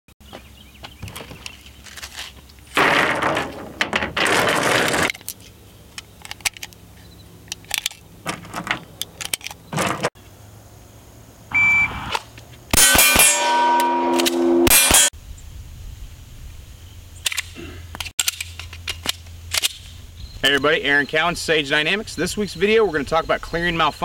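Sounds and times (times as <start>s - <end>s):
rounds clicking into magazine: 5.1s - 6.8s, 7.5s - 8.0s, 8.9s - 9.6s, 17.2s - 19.9s
metallic ringing: 12.8s - 15.1s.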